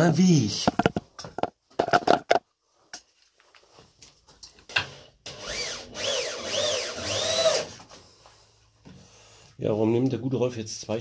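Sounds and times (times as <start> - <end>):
power drill running: 5.3 - 7.8.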